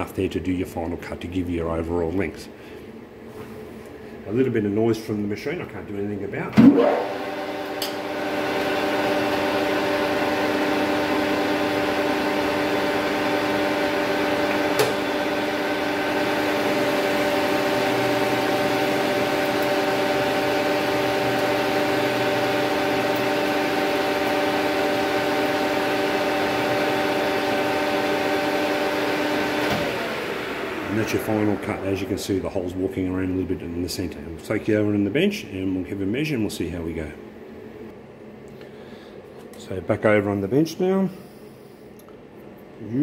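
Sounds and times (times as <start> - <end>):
lathe headstock whine: 6.7 - 32.6.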